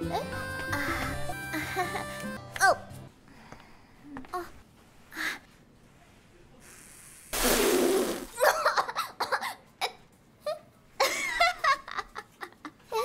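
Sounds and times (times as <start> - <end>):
girl choking and coughing: 8.3 - 10.0.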